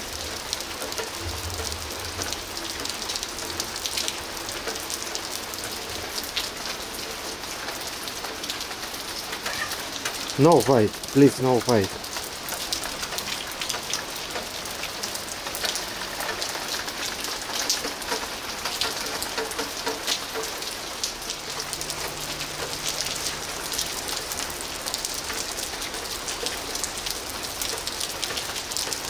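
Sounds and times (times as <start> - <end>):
rain falling on pavement: 0.0 - 29.0
raindrops ticking: 0.0 - 29.0.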